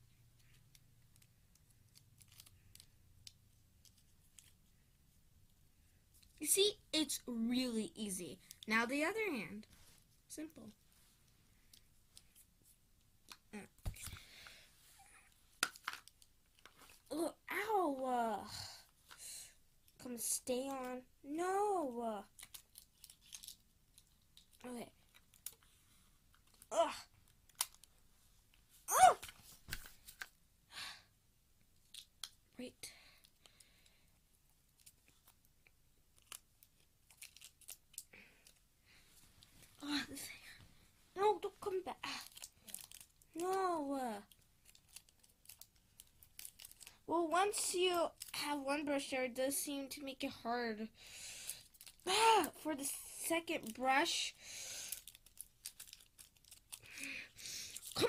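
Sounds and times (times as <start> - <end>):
faint clicks and rustles: 0.0 - 6.4, 9.6 - 17.1, 22.3 - 30.4, 44.2 - 47.1, 54.9 - 58.0
sticky tape crackling: 0.4 - 4.7, 22.2 - 25.7, 26.3 - 27.9, 36.1 - 38.6, 41.2 - 48.5, 54.8 - 58.0.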